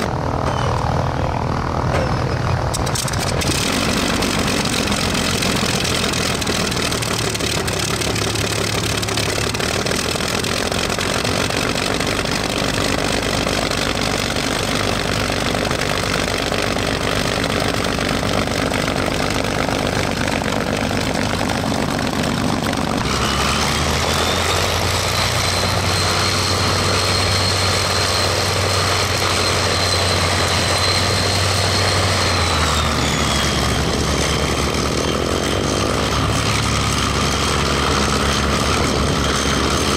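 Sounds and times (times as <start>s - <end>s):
high whine: 0.0s - 39.9s
piston aircraft engine running: 0.0s - 39.9s.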